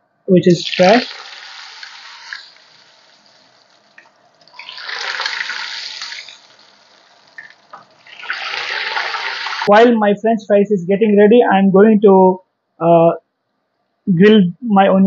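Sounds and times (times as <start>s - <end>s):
oil sizzling in a frying pan: 0.6s - 9.7s.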